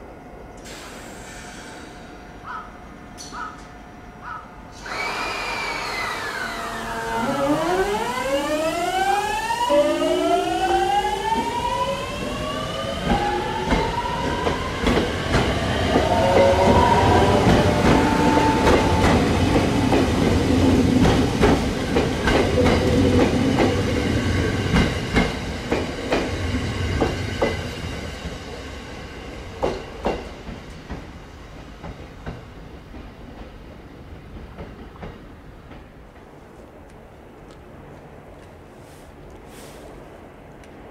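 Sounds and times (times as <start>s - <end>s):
electric train inverter whining: 1.6s - 27.8s
train wheels clicking over rail joints: 11.3s - 28.4s, 29.6s - 36.3s.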